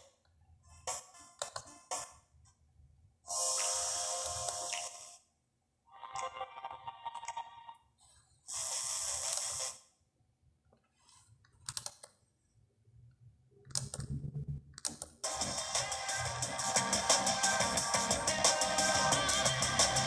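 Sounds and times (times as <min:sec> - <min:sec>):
hiss-like noise from speakers: 0:03.3 - 0:05.2
music from speakers: 0:15.3 - 0:20.0.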